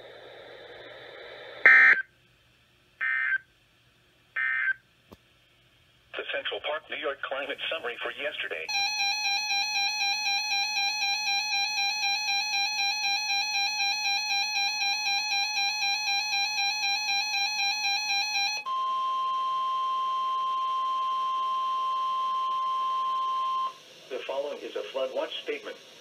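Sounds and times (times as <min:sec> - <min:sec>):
rapid alarm beeping: 0:01.7 - 0:02.0, 0:08.7 - 0:23.8.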